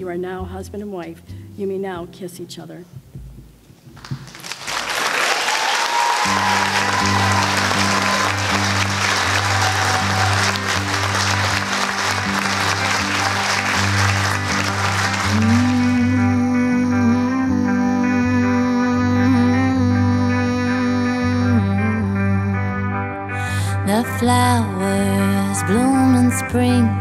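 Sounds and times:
guests applauding and cheering: 0:04.0 - 0:16.3
guitar melody: 0:06.2 - 0:27.0
low bass notes: 0:06.9 - 0:27.0.

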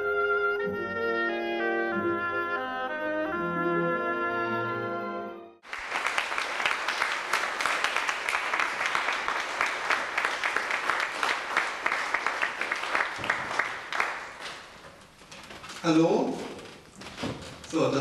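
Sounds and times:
crowd applauding: 0:05.6 - 0:14.8.

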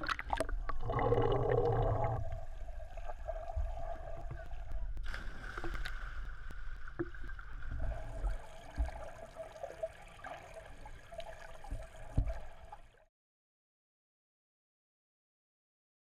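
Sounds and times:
low underwater rumble: 0:00.0 - 0:09.2.

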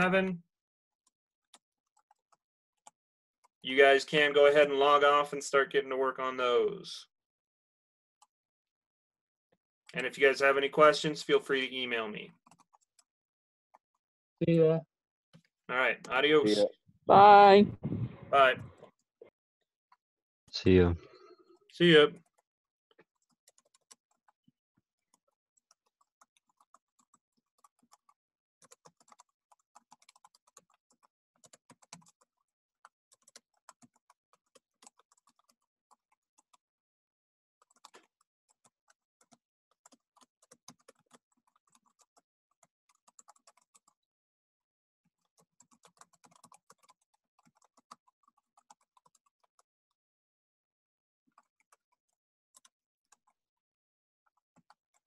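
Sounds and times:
typing on keyboard: 0:10.0 - 0:13.1, 0:23.0 - 0:24.4, 0:25.0 - 0:36.6, 0:37.6 - 0:44.0, 0:45.1 - 0:49.7, 0:51.3 - 0:53.4, 0:54.3 - 0:55.0.

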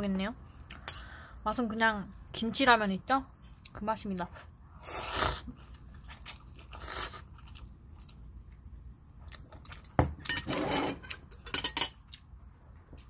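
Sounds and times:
person chewing and slurping noodles: 0:04.8 - 0:08.3.

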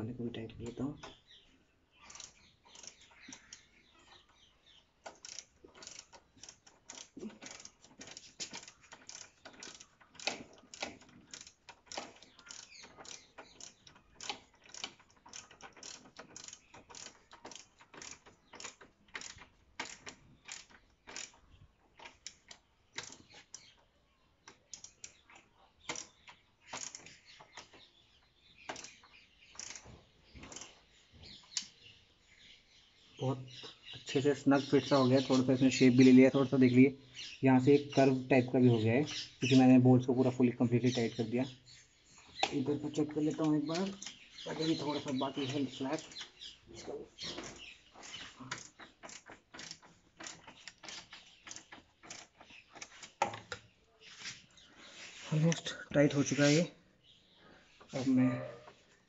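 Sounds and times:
ratchet wrench clicking: 0:02.0 - 0:03.6, 0:05.1 - 0:21.3, 0:23.0 - 0:23.6, 0:29.6 - 0:29.8, 0:30.4 - 0:30.7, 0:47.4 - 0:53.3.

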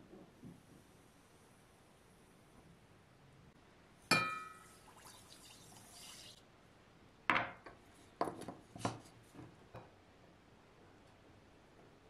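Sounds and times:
glass clinking on metal pot: 0:04.1 - 0:04.7.

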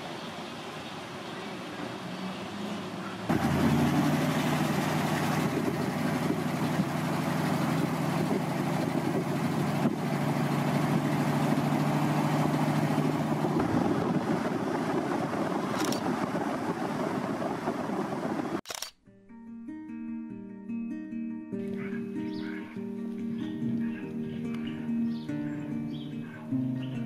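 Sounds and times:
road and wind noise: 0:00.0 - 0:18.9
pickup engine drone: 0:01.6 - 0:18.8.

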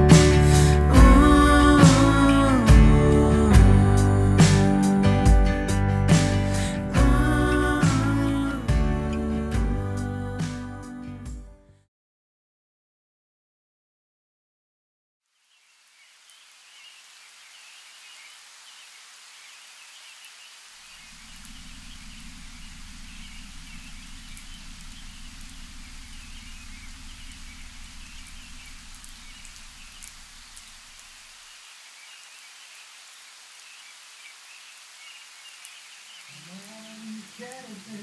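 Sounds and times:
low rumble: 0:00.0 - 0:06.0, 0:06.9 - 0:10.3, 0:21.2 - 0:30.4
steady rain: 0:00.0 - 0:10.2, 0:15.3 - 0:38.0.

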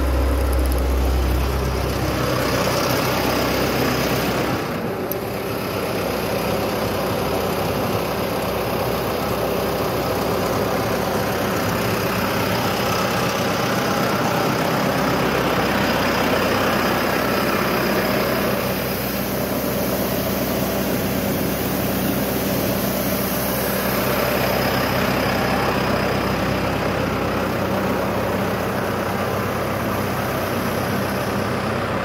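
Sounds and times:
tractor diesel engine running: 0:00.0 - 0:32.0
water pouring from hose: 0:08.0 - 0:26.9.

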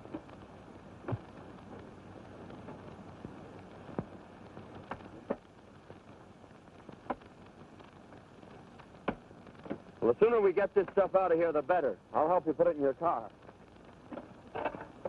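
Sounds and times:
sharp clicks and pops: 0:00.0 - 0:10.0, 0:13.3 - 0:15.0
film soundtrack hiss: 0:00.0 - 0:15.0.

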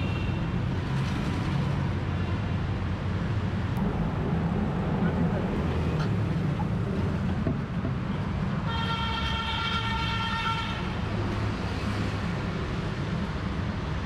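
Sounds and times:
street traffic engines: 0:00.0 - 0:14.0
vehicle horn: 0:08.6 - 0:11.0.

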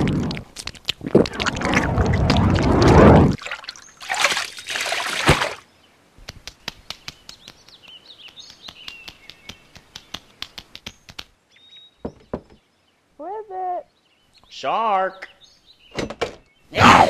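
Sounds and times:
cartoon water splashing: 0:00.0 - 0:05.6
light clicking footsteps: 0:06.2 - 0:11.4
faint bird chirps: 0:06.6 - 0:16.8.

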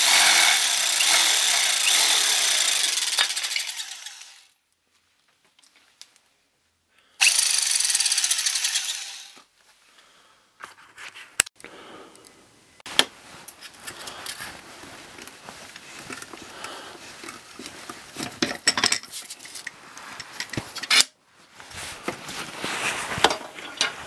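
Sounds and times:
power tool running: 0:00.0 - 0:04.5, 0:07.2 - 0:09.4
hardware rattling: 0:17.2 - 0:21.0.

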